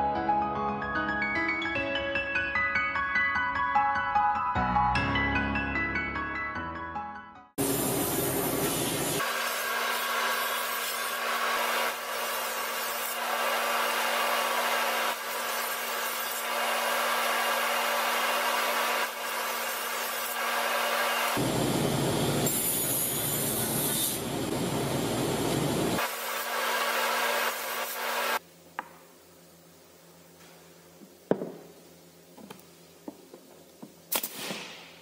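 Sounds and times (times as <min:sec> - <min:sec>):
table saw cutting wood: 0:08.1 - 0:21.5, 0:22.4 - 0:24.3, 0:26.0 - 0:28.4.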